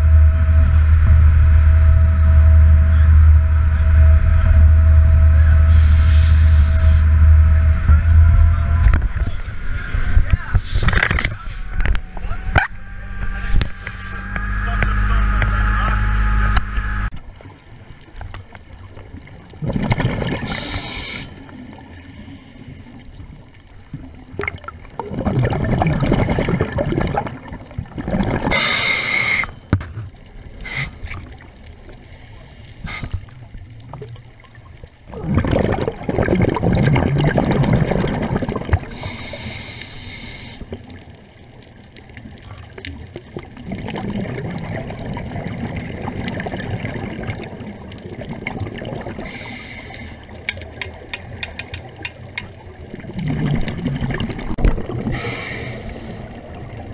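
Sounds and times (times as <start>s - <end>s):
regulator inhale hiss: 5.7s - 7.1s, 13.4s - 14.3s, 20.5s - 21.4s, 22.0s - 22.9s, 28.5s - 29.6s, 30.6s - 31.1s, 32.0s - 33.3s, 38.9s - 40.8s, 49.2s - 50.2s, 55.1s - 56.4s
bubbling underwater exhalations: 19.5s - 21.8s, 24.4s - 29.5s, 35.0s - 39.4s, 42.4s - 56.9s.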